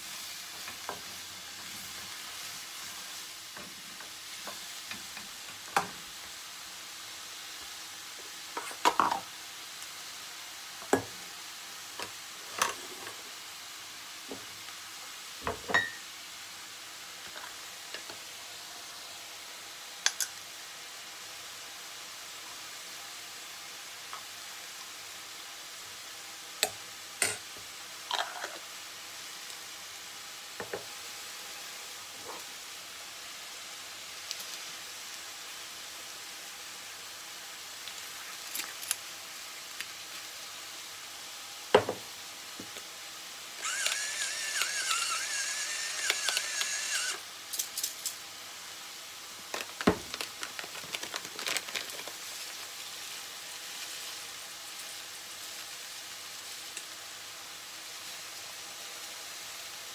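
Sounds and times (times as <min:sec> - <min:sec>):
plastic packet crinkling: 0:49.4 - 0:52.8.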